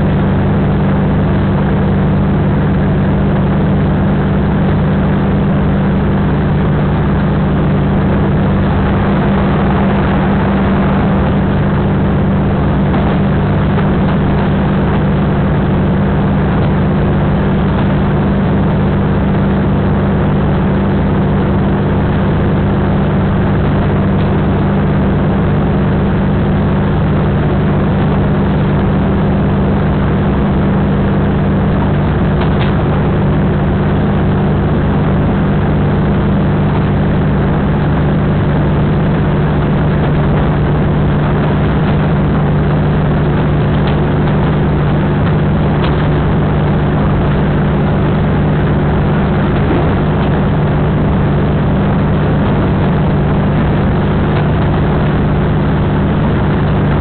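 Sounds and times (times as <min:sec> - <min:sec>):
diesel engine drone: 0:00.0 - 0:57.0
train rumbling: 0:07.0 - 0:15.6, 0:42.9 - 0:54.9.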